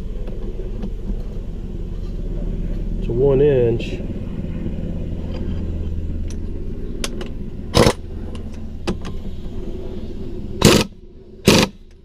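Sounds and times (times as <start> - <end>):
steady low hum: 0.0 - 12.0
impact wrench burst: 7.7 - 8.0, 10.6 - 11.8.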